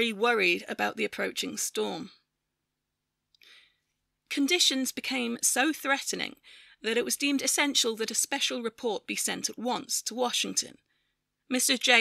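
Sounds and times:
person breathing in: 3.4s - 3.9s, 6.4s - 6.8s.

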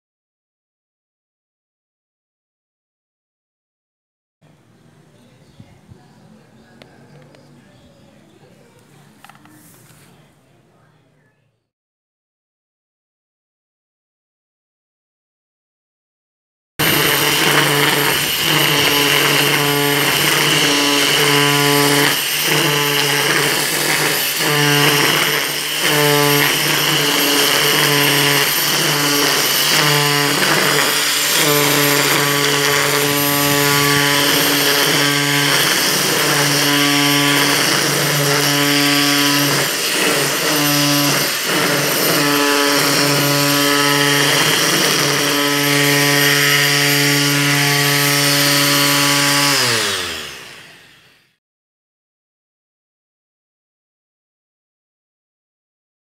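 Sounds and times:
grass cutter whining: 16.8s - 51.4s.

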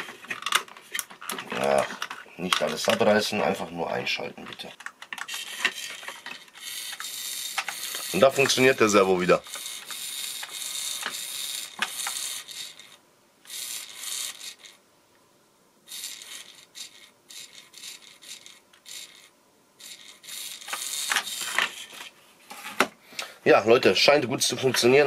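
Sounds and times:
small servo motor whirring: 5.2s - 14.8s, 15.9s - 22.1s.

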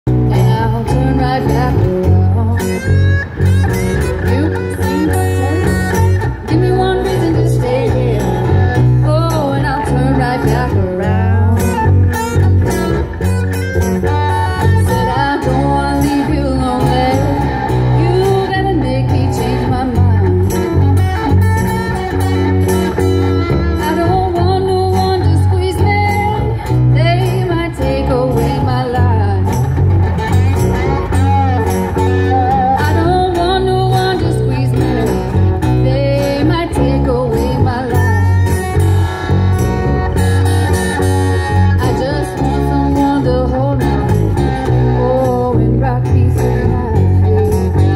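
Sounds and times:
electric bass: 0.0s - 47.9s
strummed acoustic guitars: 0.1s - 47.9s
woman singing: 0.2s - 2.8s, 4.2s - 12.0s, 14.2s - 20.7s, 23.8s - 29.7s, 32.2s - 38.7s, 41.8s - 47.9s.

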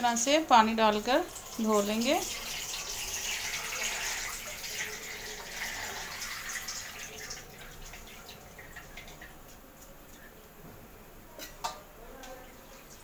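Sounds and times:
water dripping and splashing: 1.0s - 10.4s, 11.4s - 13.0s
water pouring into strainer: 1.1s - 10.2s.

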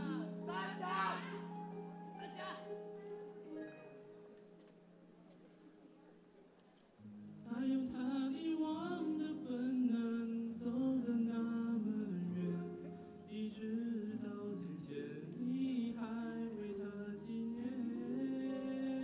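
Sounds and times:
soft sustained accompaniment: 0.0s - 19.0s
man singing slow song: 7.4s - 19.0s.

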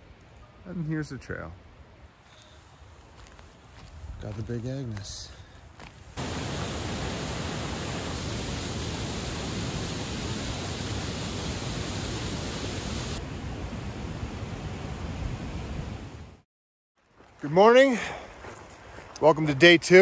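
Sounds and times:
steady rushing noise: 6.2s - 15.8s.

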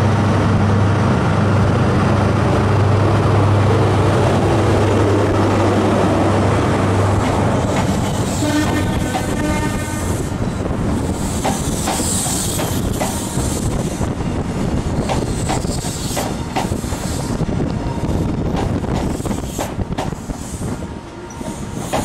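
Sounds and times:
train engine droning: 0.0s - 22.0s
wheels clacking over rail joints: 7.1s - 9.4s
train horn: 8.3s - 10.4s.

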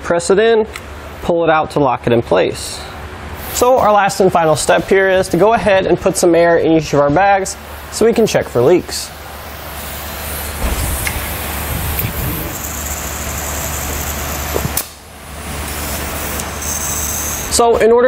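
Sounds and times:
compressed air hissing: 3.4s - 4.8s, 8.7s - 17.6s.

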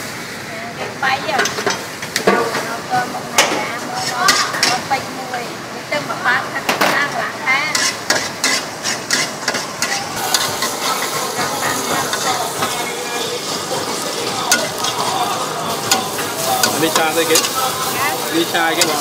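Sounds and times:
aromatics sizzling in a wok: 0.0s - 19.0s
spatula stirring in a wok: 3.4s - 5.2s, 7.1s - 19.0s.

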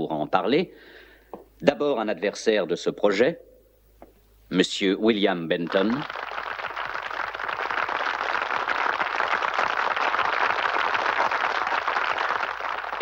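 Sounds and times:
studio audience applauding: 5.6s - 13.0s.

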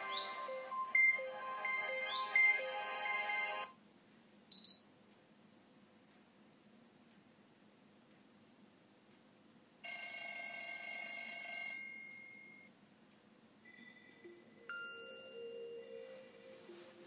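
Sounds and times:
electronic alarm ring: 0.0s - 3.7s, 9.8s - 12.7s
soft chiming alert tone: 13.7s - 17.0s.

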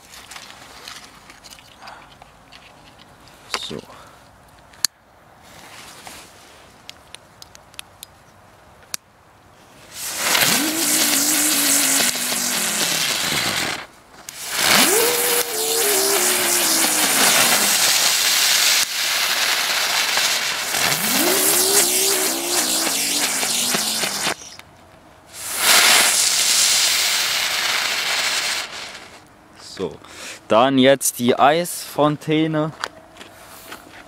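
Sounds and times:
ground fireworks fizzing: 9.8s - 24.6s, 25.3s - 29.3s.

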